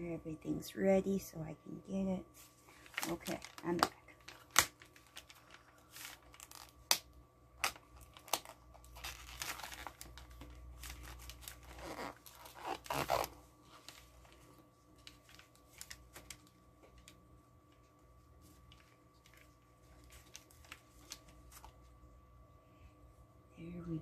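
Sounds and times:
paper crinkling: 0:02.7 - 0:07.0, 0:07.6 - 0:22.1
tape peeling off: 0:06.0 - 0:07.0, 0:07.6 - 0:13.4.

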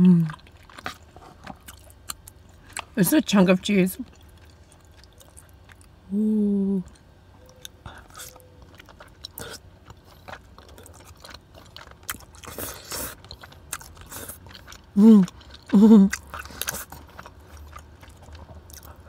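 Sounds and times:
person humming: 0:00.0 - 0:00.3, 0:06.1 - 0:06.9, 0:15.0 - 0:16.1
chewing: 0:00.2 - 0:03.0, 0:04.0 - 0:06.0, 0:06.8 - 0:19.0
slurping: 0:08.0 - 0:17.7.

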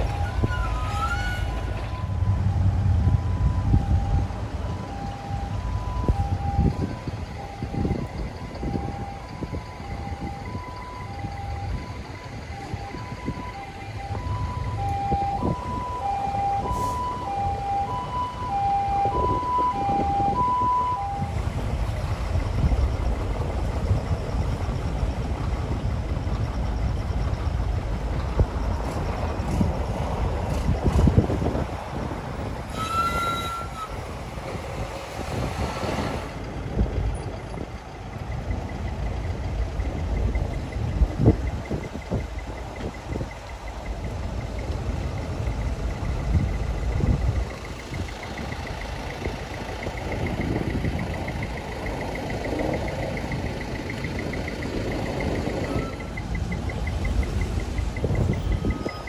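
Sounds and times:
two-tone ambulance siren: 0:00.0 - 0:36.0, 0:37.2 - 0:59.0
truck traffic rumble: 0:00.0 - 0:59.0
rapid beeping: 0:38.3 - 0:59.0.

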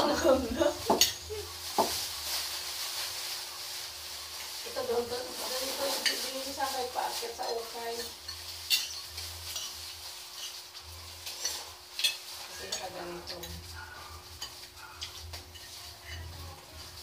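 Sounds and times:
cutlery and dishes clinking: 0:00.9 - 0:02.0, 0:05.6 - 0:17.0.

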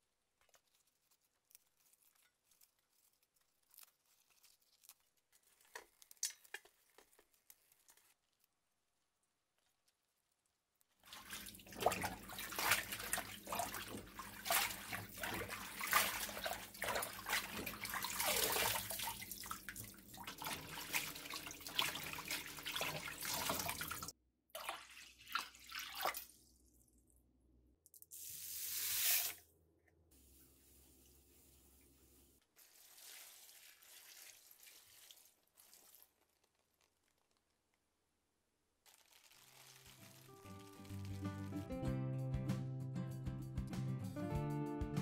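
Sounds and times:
tap water splashing on greens: 0:11.0 - 0:26.3, 0:38.9 - 0:41.6
water pouring into metal bowl: 0:32.6 - 0:36.0, 0:38.9 - 0:41.5.

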